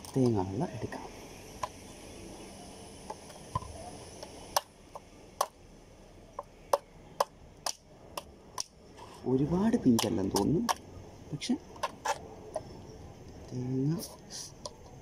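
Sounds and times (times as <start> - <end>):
knife tapping coconut shell: 9.8 - 10.8.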